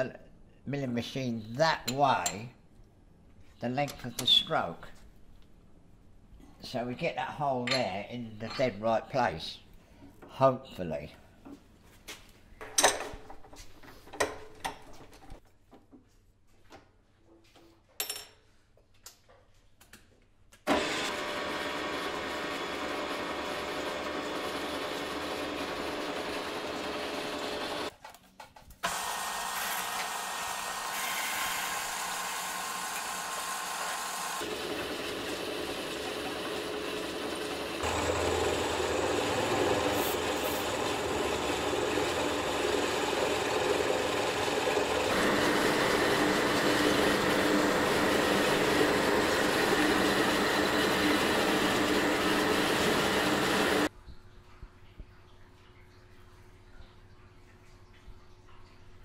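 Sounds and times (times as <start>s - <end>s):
milling machine cutting metal: 20.7s - 27.9s, 28.8s - 53.9s.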